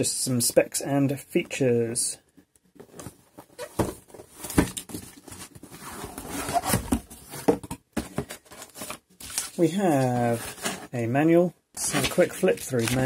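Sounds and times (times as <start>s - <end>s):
cardboard box rubbing and scraping: 5.3s - 7.6s, 10.1s - 10.9s.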